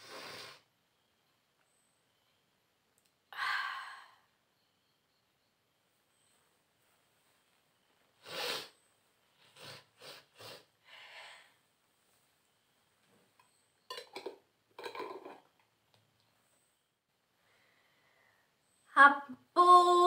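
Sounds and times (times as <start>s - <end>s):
woman sniffing through nose: 0.0s - 0.6s, 8.2s - 8.8s, 9.4s - 10.7s.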